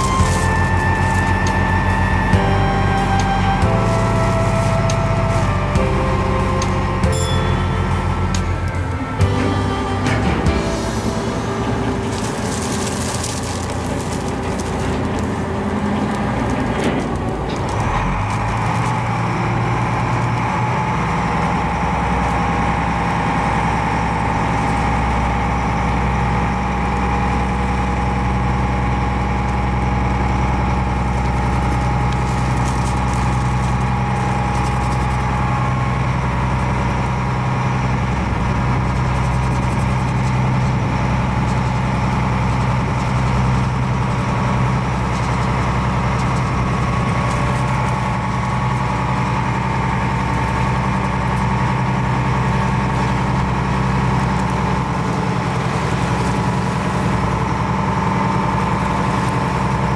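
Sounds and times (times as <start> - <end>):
diesel engine humming: 0.0 - 59.9.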